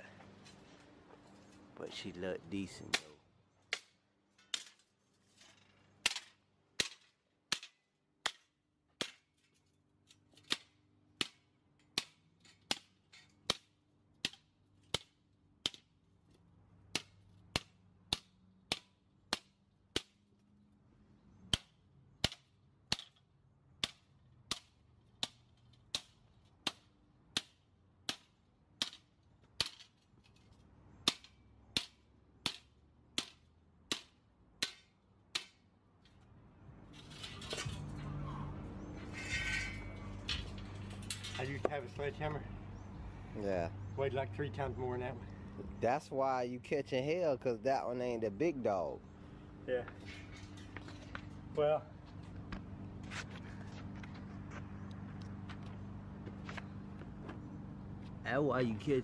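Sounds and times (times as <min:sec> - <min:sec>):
sledgehammer striking steel strip: 0:31.0 - 0:35.6.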